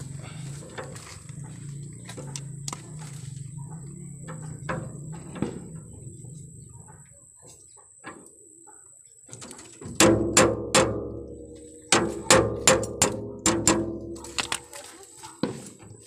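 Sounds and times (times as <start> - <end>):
hammer clanging on metal: 9.9 - 14.6.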